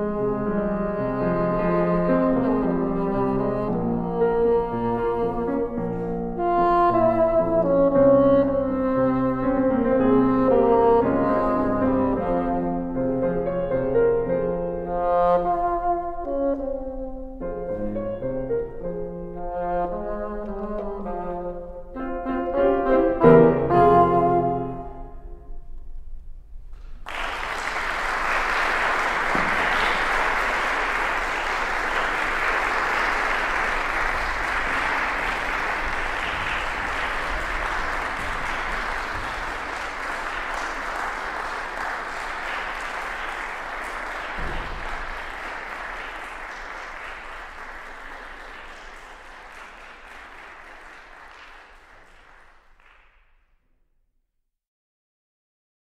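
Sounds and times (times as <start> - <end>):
audience applause: 27.0 - 53.2.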